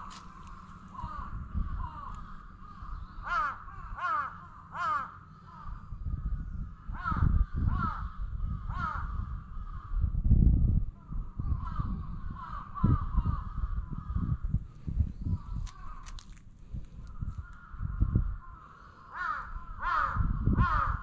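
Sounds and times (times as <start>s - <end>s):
crow cawing: 0.0s - 10.1s, 11.0s - 14.6s, 15.4s - 16.4s, 17.1s - 21.0s
steady low rumble: 0.0s - 21.0s.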